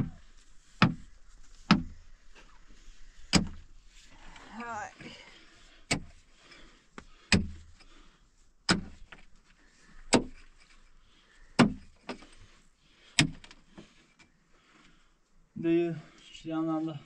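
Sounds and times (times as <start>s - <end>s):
knocks of dirt and stones: 0.0s - 2.6s, 3.2s - 3.7s, 5.9s - 8.0s, 8.6s - 14.9s
pickaxe striking stony earth: 0.8s - 1.1s, 1.7s - 2.0s, 3.3s - 3.6s, 7.3s - 7.6s, 8.7s - 9.1s, 10.1s - 10.4s, 11.6s - 12.2s, 13.2s - 13.4s.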